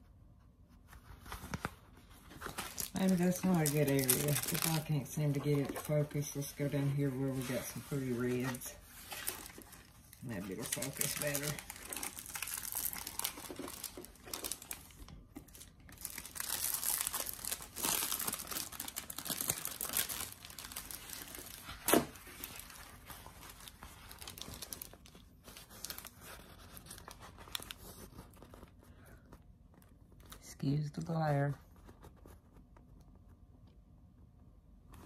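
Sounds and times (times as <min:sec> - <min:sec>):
plastic film crinkling: 0:01.4 - 0:28.8.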